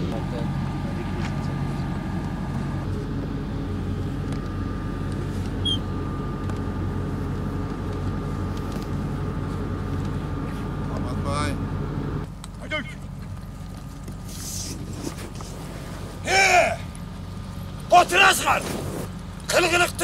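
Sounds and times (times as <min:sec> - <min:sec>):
low engine-like hum: 0:00.0 - 0:20.0
thin high whine: 0:00.9 - 0:12.3.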